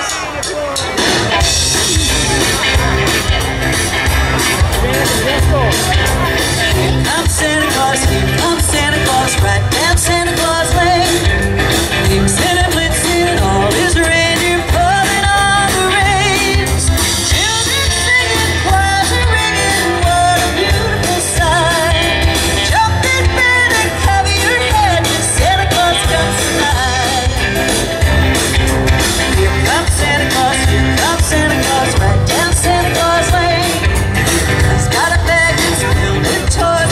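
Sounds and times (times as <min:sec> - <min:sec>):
drums: 0:00.0 - 0:36.9
electric guitar: 0:00.0 - 0:36.9
woman singing into a microphone: 0:07.0 - 0:27.5, 0:29.3 - 0:36.9.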